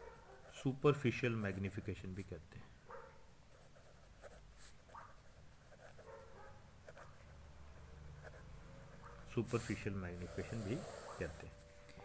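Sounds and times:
pen scratching on paper: 3.5 - 6.2, 6.8 - 11.6.

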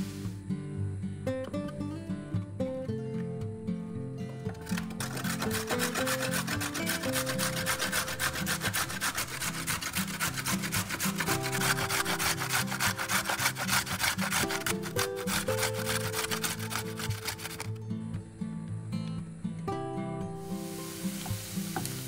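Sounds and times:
carrot rasping on metal grater: 4.6 - 17.8.

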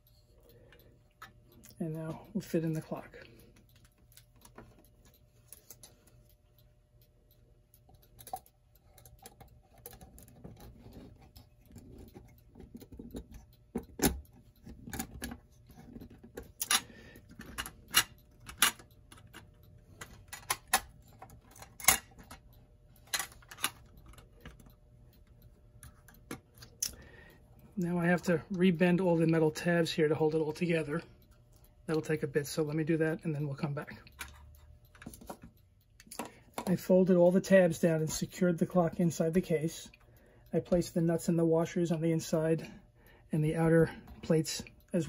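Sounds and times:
small metallic clicks and knocks: 0.0 - 27.0, 30.5 - 41.0.

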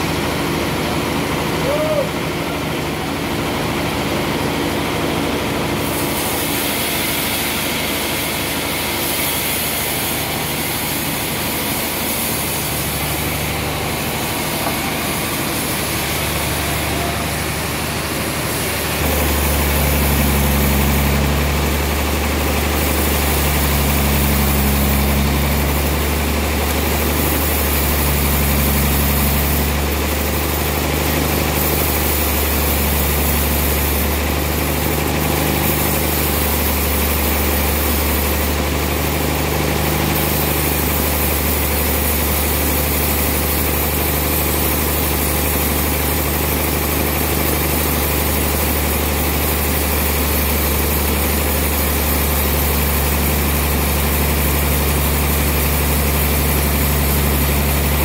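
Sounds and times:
sawmill machinery drone: 0.0 - 58.0
deep pulsing hum: 16.4 - 29.9.

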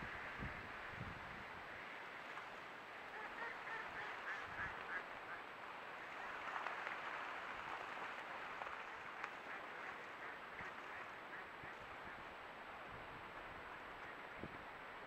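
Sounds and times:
steady background hiss: 0.0 - 15.0
mallards quacking: 3.0 - 5.5, 9.0 - 12.2.

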